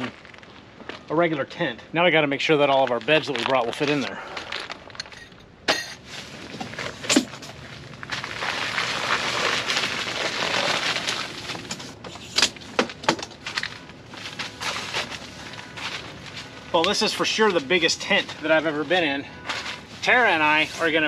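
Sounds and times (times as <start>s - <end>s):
tent fabric rustling and scraping: 6.0s - 12.8s, 13.4s - 21.0s.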